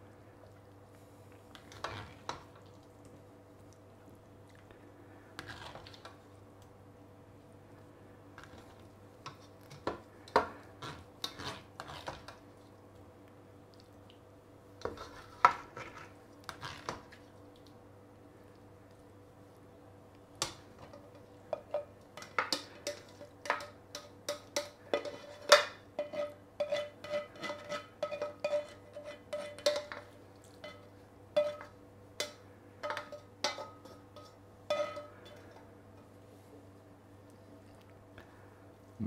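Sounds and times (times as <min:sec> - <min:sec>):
utensil scraping steel pan: 0:24.6 - 0:30.0, 0:32.8 - 0:35.6.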